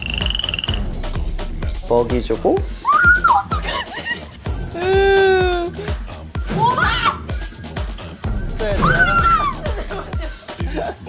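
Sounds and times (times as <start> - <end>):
background music with beat: 0.0 - 11.0
woman shrieking: 2.8 - 3.6, 4.8 - 5.8, 6.6 - 7.2, 8.8 - 9.8.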